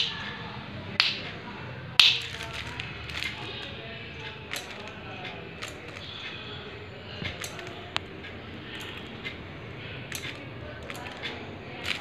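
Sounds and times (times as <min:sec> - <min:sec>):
plastic rustling: 0:02.1 - 0:03.7.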